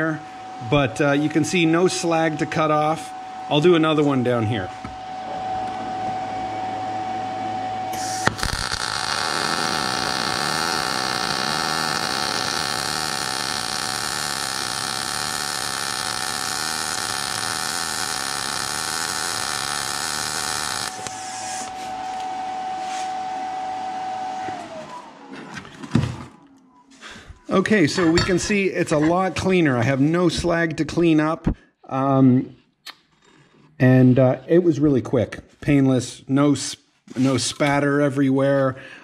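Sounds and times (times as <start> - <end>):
high whine: 0.0 - 25.7
welding arc strike click: 7.9 - 21.2
welding arc hissing: 7.9 - 22.0.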